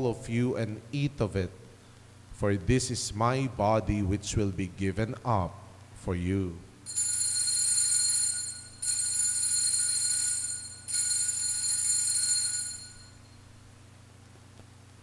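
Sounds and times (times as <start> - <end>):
altar bell ringing: 6.9 - 13.4.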